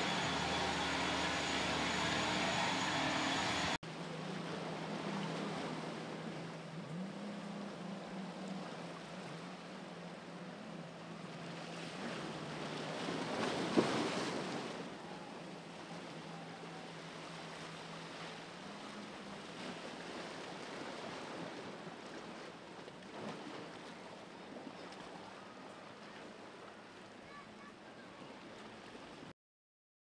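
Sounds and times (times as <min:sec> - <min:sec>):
surf hissing: 0:00.0 - 0:03.8
wave washing in: 0:00.0 - 0:16.0
jet ski engine drone: 0:00.0 - 0:20.6
wind: 0:00.0 - 0:29.3.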